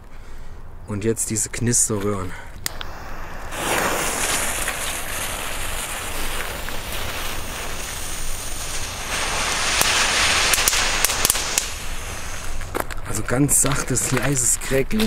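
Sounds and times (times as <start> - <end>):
faint firework crackles: 1.9 - 15.0
firework hissing: 2.6 - 14.2.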